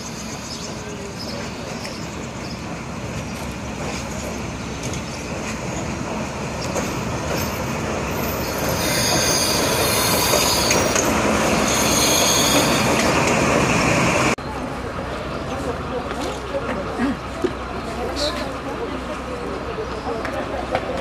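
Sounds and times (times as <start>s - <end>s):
diesel locomotive rumbling: 0.0s - 21.0s
wheel and brake squeal: 6.6s - 13.4s.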